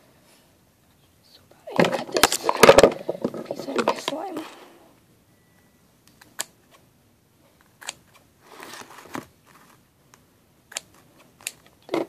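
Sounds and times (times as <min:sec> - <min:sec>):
soft rustling: 0:08.4 - 0:09.9.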